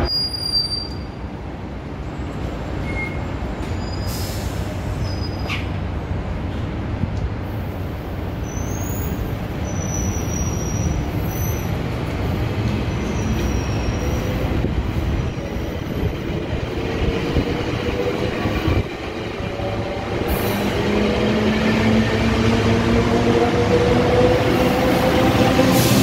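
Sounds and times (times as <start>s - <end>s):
train wheels squealing: 0.0s - 1.2s, 2.8s - 5.7s, 8.4s - 11.8s, 12.8s - 14.6s
train rumble: 0.9s - 26.0s.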